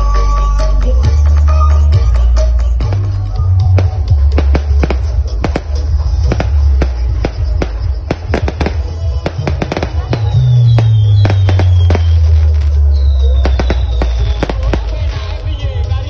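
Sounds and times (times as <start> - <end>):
music with heavy bass: 0.0 - 16.0
fireworks cracking and banging: 2.7 - 16.0
firework whistles falling in pitch: 9.7 - 14.8.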